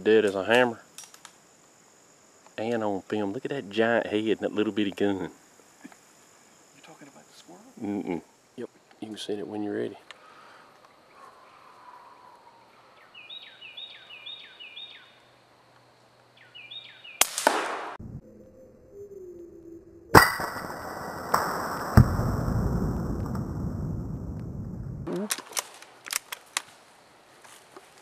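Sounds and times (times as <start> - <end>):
rifle shots: 17.2 - 18.0.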